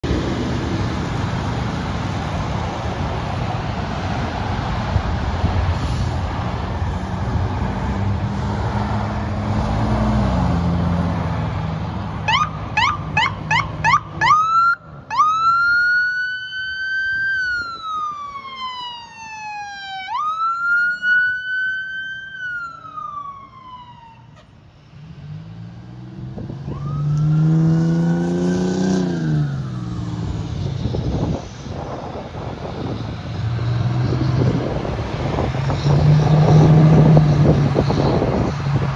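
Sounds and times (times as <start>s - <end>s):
diesel engine revving: 0.0s - 14.4s, 24.8s - 38.9s
passing road traffic: 0.0s - 38.9s
electronic siren yelping and wailing: 12.3s - 24.4s, 26.6s - 28.2s, 28.9s - 30.3s.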